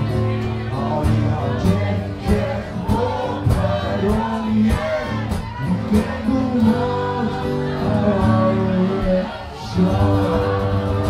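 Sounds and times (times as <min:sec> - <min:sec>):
group of people singing: 0:00.0 - 0:11.0
strummed acoustic guitar: 0:00.0 - 0:11.0.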